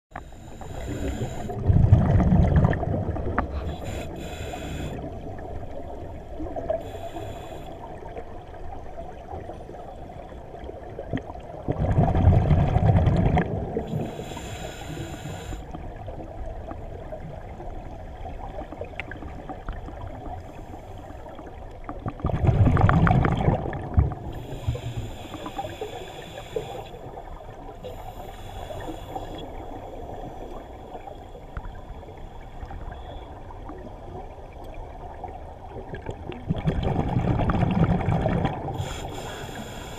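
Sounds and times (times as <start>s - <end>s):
scuba regulator hissing: 0.3s - 1.6s, 3.6s - 5.0s, 38.8s - 39.9s
bubbles rumbling underwater: 1.4s - 3.7s, 10.5s - 14.1s, 21.8s - 24.4s, 32.6s - 38.8s.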